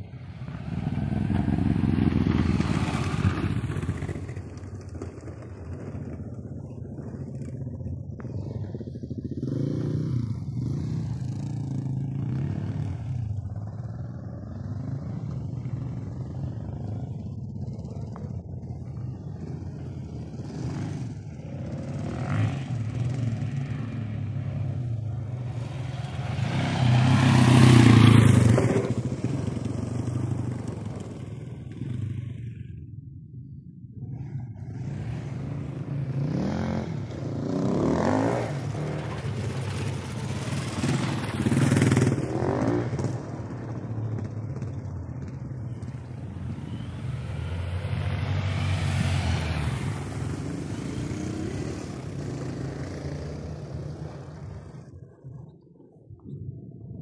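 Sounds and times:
dirt bike passing close: 0:00.0 - 0:32.8, 0:34.0 - 0:55.5
distant dirt bike engines: 0:00.0 - 0:57.0.

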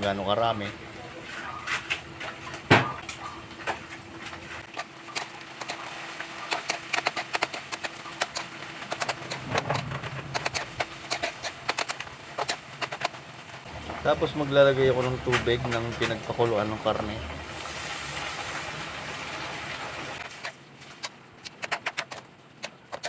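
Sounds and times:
food sizzling in hot oil: 0:17.4 - 0:20.2.

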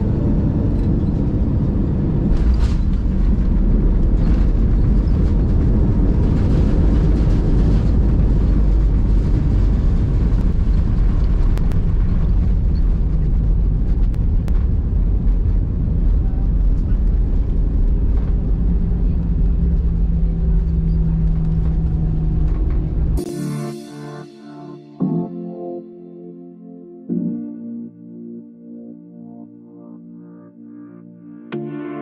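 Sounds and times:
aircraft cabin rumble: 0:00.0 - 0:23.2.

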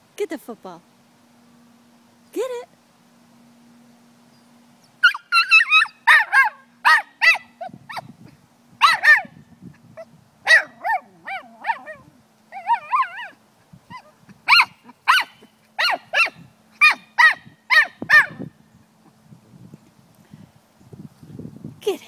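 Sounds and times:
small dog yipping and whining: 0:04.8 - 0:08.1, 0:08.8 - 0:09.3, 0:10.0 - 0:18.4.

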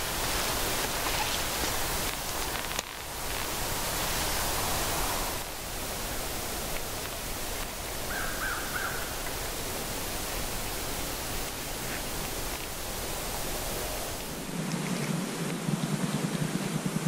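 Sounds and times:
woodland ambience hiss: 0:00.0 - 0:17.0
bird calls: 0:07.9 - 0:09.4.

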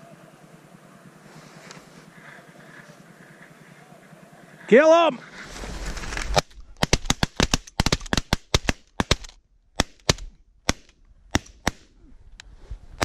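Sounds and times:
shotgun shots: 0:06.3 - 0:11.9.

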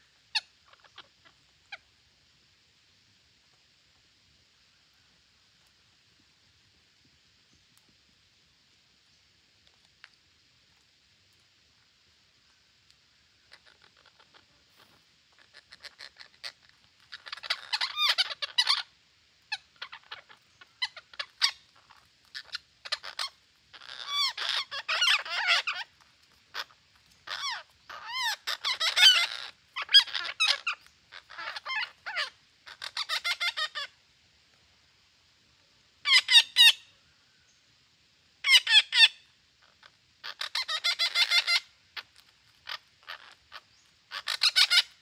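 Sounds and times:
parakeets squawking and chattering: 0:00.3 - 0:01.8, 0:13.5 - 0:33.9, 0:36.0 - 0:36.8, 0:38.4 - 0:45.0.

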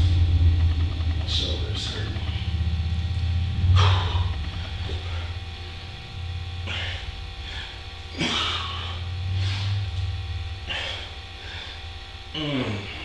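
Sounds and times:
steady low hum: 0:00.0 - 0:13.0
man breathing hard: 0:03.8 - 0:06.0, 0:06.6 - 0:10.0, 0:10.6 - 0:13.0.

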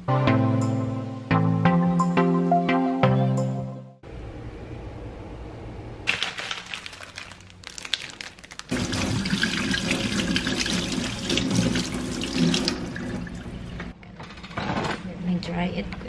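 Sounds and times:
tap water running onto hands: 0:08.7 - 0:13.5
water splashing in steel sink: 0:08.7 - 0:13.7.

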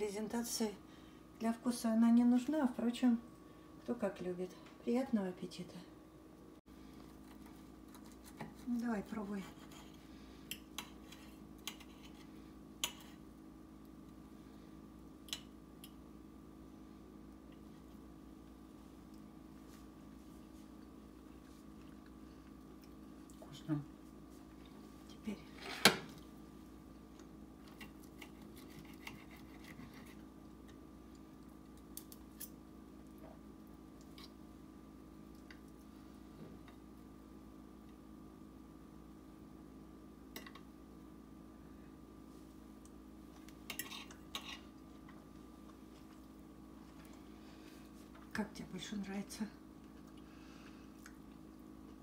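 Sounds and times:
faint steady hum: 0:00.0 - 0:52.0
cutlery scraping on a plate: 0:09.4 - 0:13.2, 0:43.7 - 0:44.7.

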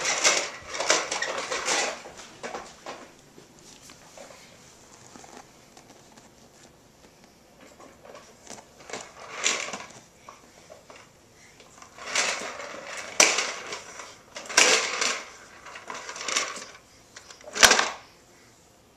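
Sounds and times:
popper toy balls clattering: 0:00.0 - 0:02.6, 0:08.8 - 0:10.0, 0:11.8 - 0:16.8, 0:17.4 - 0:18.0.

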